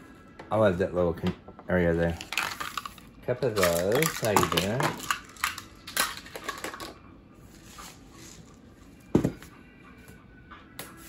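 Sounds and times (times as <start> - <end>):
oats rattling into glass bowl: 2.2 - 7.0.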